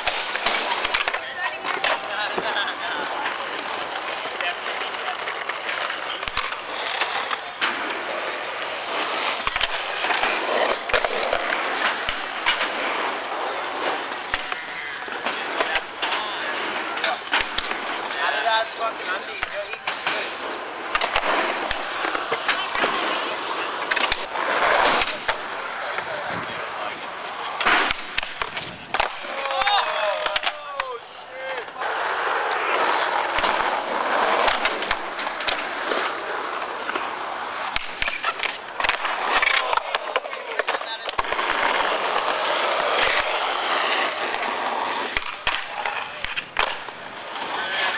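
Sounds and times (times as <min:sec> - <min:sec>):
skateboard clacks: 0:00.0 - 0:47.9
skateboard wheels rolling on concrete: 0:00.0 - 0:47.9.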